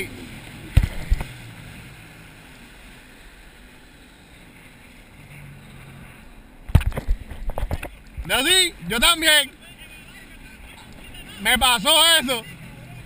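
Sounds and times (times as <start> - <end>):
watercraft engine hum: 0.0 - 13.0.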